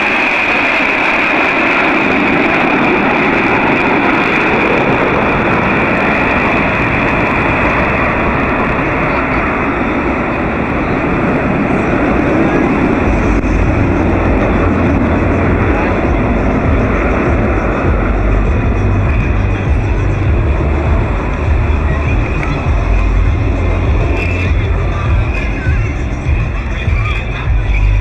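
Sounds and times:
jet aircraft passing overhead: 0.0s - 28.0s.

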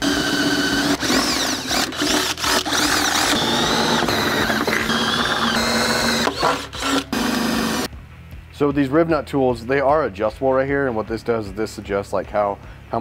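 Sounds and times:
drill whining through sheet metal: 0.0s - 7.9s.

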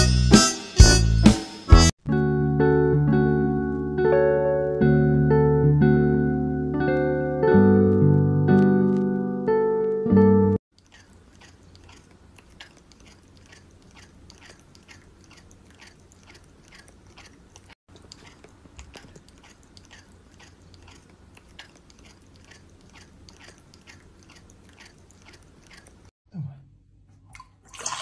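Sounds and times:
cat crunching dry kibble: 10.8s - 26.1s.

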